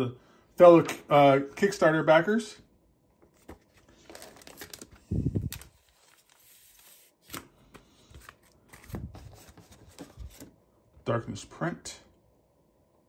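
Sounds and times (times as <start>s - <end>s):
paper and plastic rustling: 3.2s - 10.6s.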